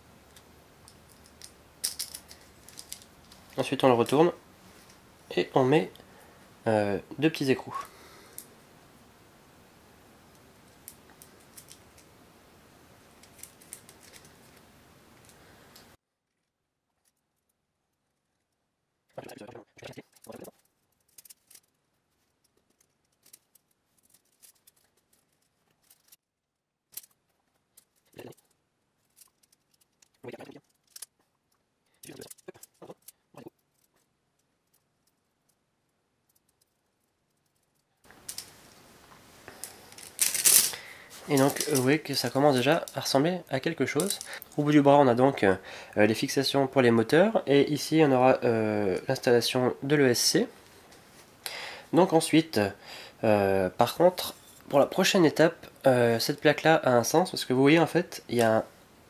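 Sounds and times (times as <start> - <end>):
faint steady hiss: 0.0 - 16.0, 26.9 - 59.0
small metal nuts and screws clicking: 0.3 - 3.5, 20.0 - 26.2, 26.9 - 35.6, 36.2 - 38.5, 39.6 - 40.8
small hardware being handled: 0.4 - 3.6, 10.7 - 12.1, 13.2 - 14.6, 19.9 - 26.2, 26.9 - 35.6, 36.2 - 38.6, 39.5 - 43.0, 44.0 - 44.6
steady hiss: 38.0 - 59.0.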